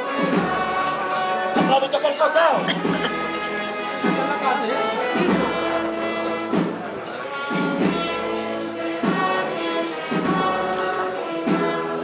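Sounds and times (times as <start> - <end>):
wind band playing slow march: 0.0 - 12.0
drum strokes: 0.2 - 12.0.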